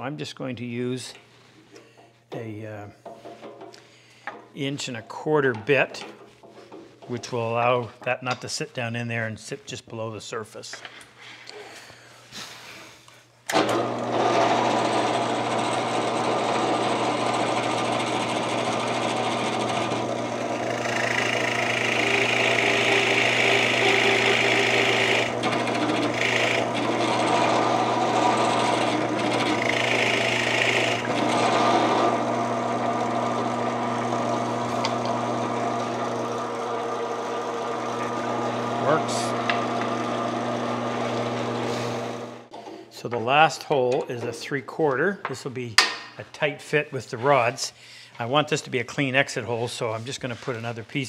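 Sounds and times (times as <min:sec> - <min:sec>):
drill bit cutting wood: 0:13.5 - 0:42.4
drill press motor running: 0:13.5 - 0:42.5.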